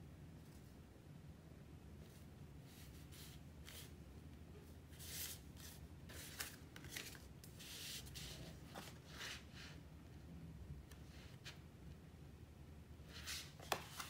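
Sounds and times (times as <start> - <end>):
low steady hum: 0.0 - 14.0
paper rustling swishes: 4.9 - 9.8.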